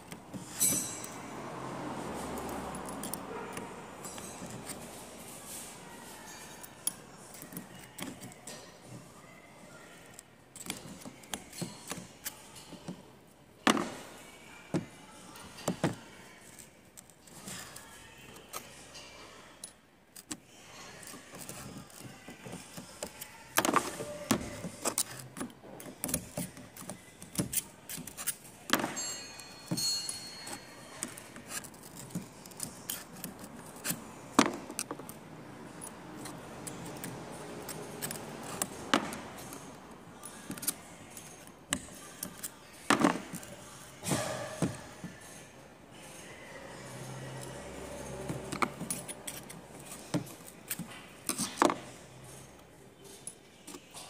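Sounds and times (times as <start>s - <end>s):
metal parts clicking and clinking: 0.1s - 1.2s, 2.4s - 4.8s, 47.0s - 54.0s
screwdriver against metal: 21.0s - 35.2s, 35.8s - 43.5s.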